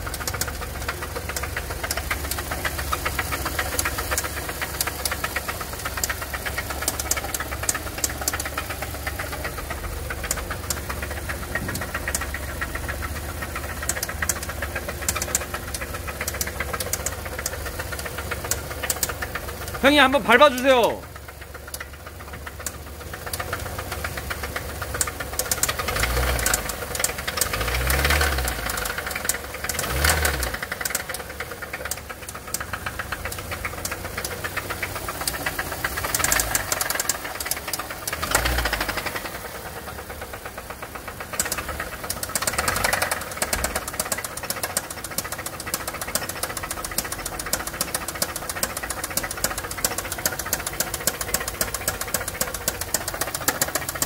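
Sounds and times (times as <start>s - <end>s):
engine knocking: 0.0s - 54.0s
car engine revving: 25.4s - 31.2s, 35.2s - 39.8s, 41.3s - 44.0s.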